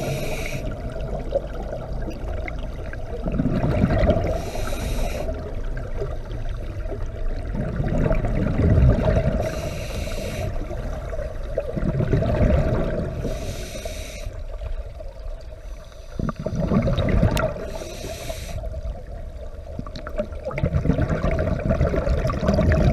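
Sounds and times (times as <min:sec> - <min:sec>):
regulator inhale hiss: 0:00.0 - 0:00.9, 0:04.2 - 0:05.5, 0:09.4 - 0:10.8, 0:13.2 - 0:14.6, 0:15.6 - 0:16.5, 0:17.6 - 0:18.9
bubbling exhaled bubbles: 0:00.0 - 0:09.7, 0:10.6 - 0:13.3, 0:16.2 - 0:18.1, 0:18.7 - 0:22.9.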